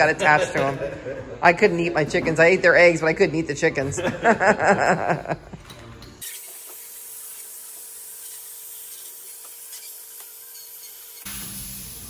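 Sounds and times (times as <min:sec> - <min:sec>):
air hissing through a hose: 0:06.2 - 0:12.0.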